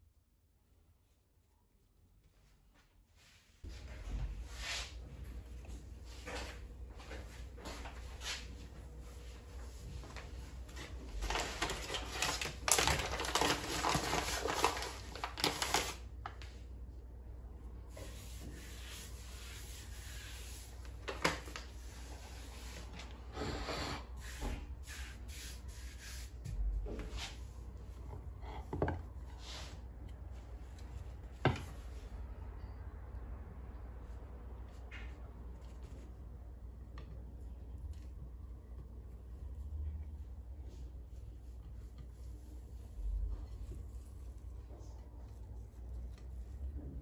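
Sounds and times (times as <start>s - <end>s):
soft rustle: 37.3s - 47.0s.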